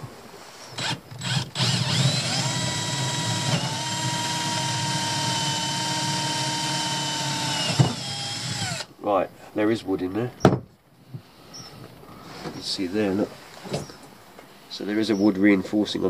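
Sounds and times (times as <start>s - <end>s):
cordless drill boring: 0.8s - 8.9s.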